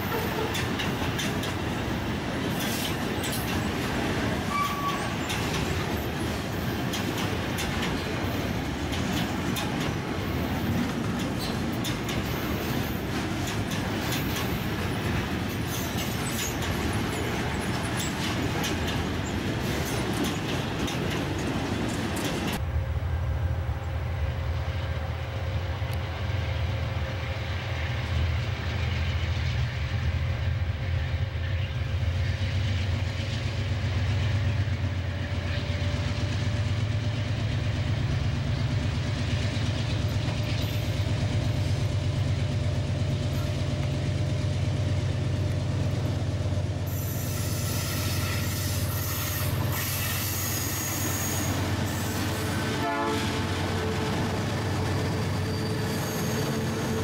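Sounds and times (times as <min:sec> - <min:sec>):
wheel-on-rail noise: 0:00.0 - 0:22.9, 0:31.4 - 0:57.0
locomotive engine rumble: 0:00.0 - 0:57.0
train clanking: 0:00.0 - 0:57.0.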